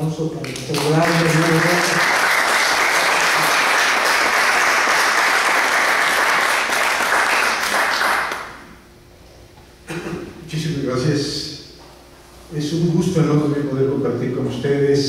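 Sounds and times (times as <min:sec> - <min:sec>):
audience applauding: 0:00.4 - 0:08.6.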